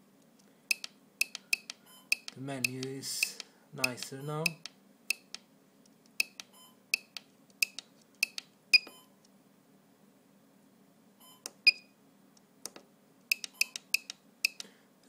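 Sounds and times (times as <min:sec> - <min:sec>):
faint steady hum: 0:00.0 - 0:15.0
push-button clicks: 0:00.7 - 0:05.4, 0:12.7 - 0:14.7.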